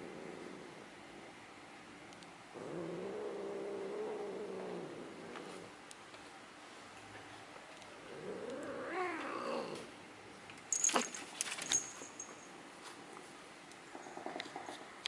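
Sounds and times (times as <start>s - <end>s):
clicks and metallic jingling: 10.7s - 12.6s.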